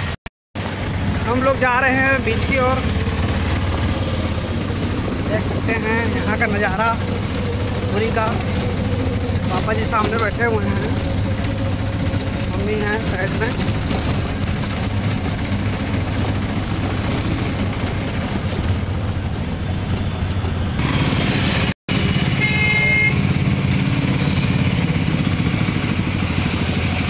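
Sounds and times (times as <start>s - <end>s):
auto-rickshaw engine running: 0.0s - 27.0s
vehicle horn honk: 22.3s - 23.3s.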